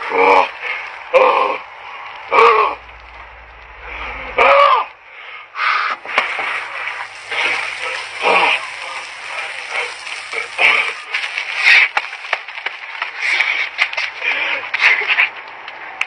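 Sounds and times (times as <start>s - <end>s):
shower water splashing: 6.0s - 12.9s.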